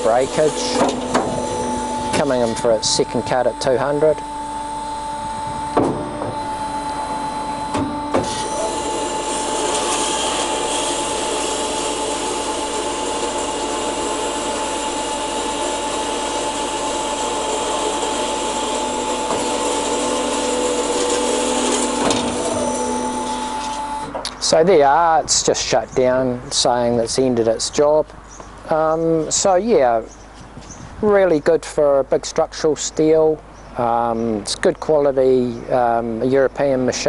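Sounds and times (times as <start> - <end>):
bandsaw cutting wood: 0.0 - 24.1
bandsaw clunk: 0.8 - 1.5.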